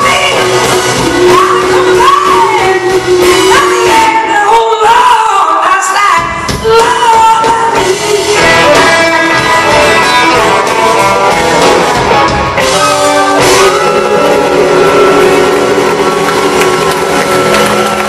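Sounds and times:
live rock band playing: 0.0s - 4.6s, 6.2s - 18.0s
woman singing: 0.0s - 11.3s, 12.6s - 15.4s.

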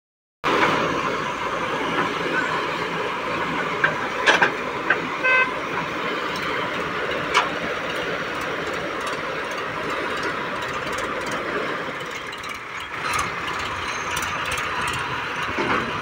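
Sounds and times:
diesel engine running: 0.4s - 16.0s
vehicle horn toot: 5.2s - 5.6s.

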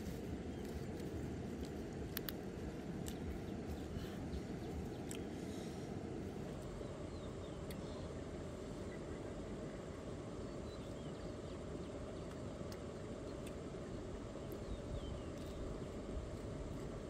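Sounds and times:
low outdoor rumble: 0.0s - 17.0s
light clicks: 0.6s - 4.1s.

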